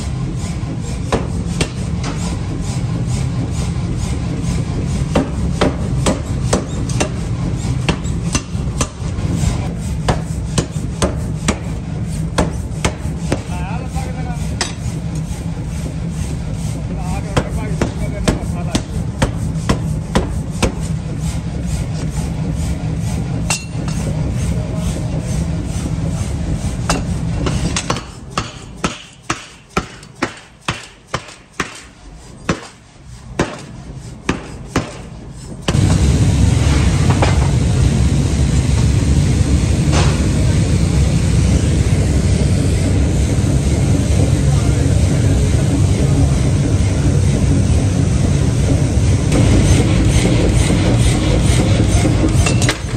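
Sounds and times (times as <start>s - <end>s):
low machine rumble: 0.0s - 52.9s
power hammer humming and striking: 4.0s - 15.9s, 21.8s - 42.1s, 44.6s - 52.9s.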